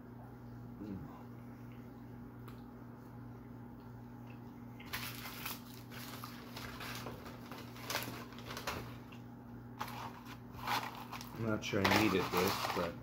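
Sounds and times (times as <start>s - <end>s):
steady low hum: 0.0s - 13.0s
paper packaging crinkling: 4.8s - 9.2s, 9.8s - 13.0s.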